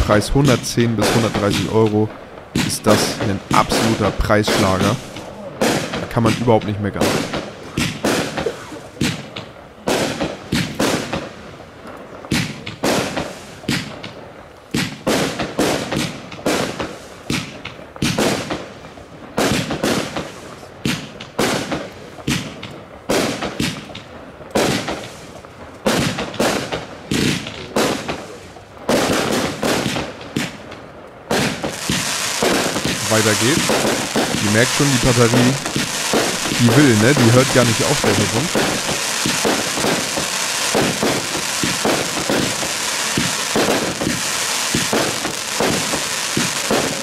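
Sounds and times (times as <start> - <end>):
dense hissing crackle: 0.0 - 6.4, 28.0 - 47.0
firework battery shots: 0.0 - 6.4, 7.0 - 11.4, 12.2 - 14.2, 14.8 - 47.0
firework shells bursting: 31.3 - 47.0.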